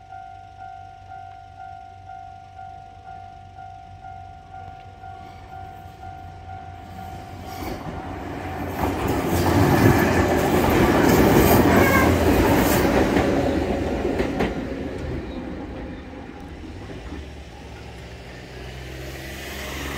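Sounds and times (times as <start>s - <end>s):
level crossing warning bell: 0.0s - 9.3s
electric train rumbling: 0.0s - 19.9s
wheels clacking over rail joints: 4.3s - 18.8s.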